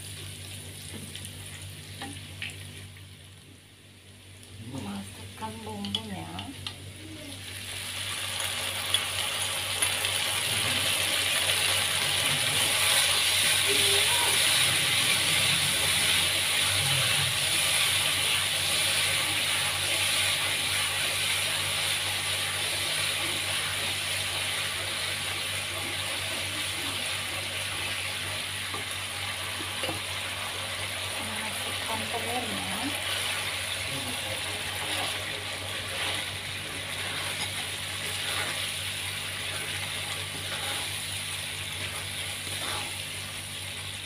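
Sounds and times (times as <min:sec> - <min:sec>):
sauce sizzling in wok: 0:00.0 - 0:04.5, 0:06.9 - 0:44.0
spatula stirring in wok: 0:34.4 - 0:44.0.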